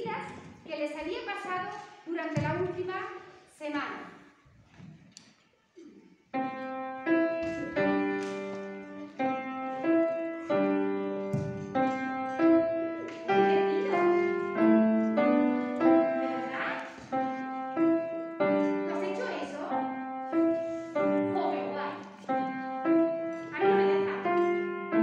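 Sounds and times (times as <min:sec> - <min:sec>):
piano chords: 0:06.4 - 0:25.0.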